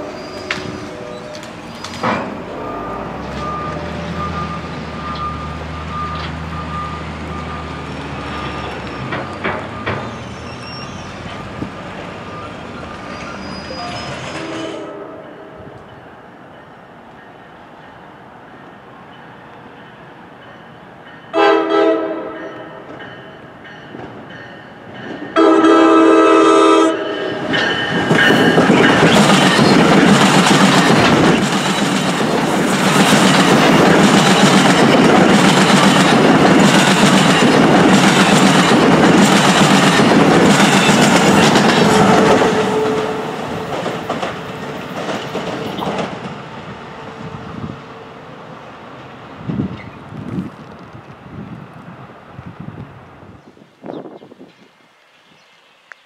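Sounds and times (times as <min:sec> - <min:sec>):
train horn blasts: 0:00.0 - 0:01.5, 0:13.7 - 0:15.8, 0:21.3 - 0:22.9, 0:25.4 - 0:28.6, 0:41.6 - 0:43.8
train wheels clicking over rail joints: 0:00.4 - 0:12.1, 0:27.3 - 0:46.5.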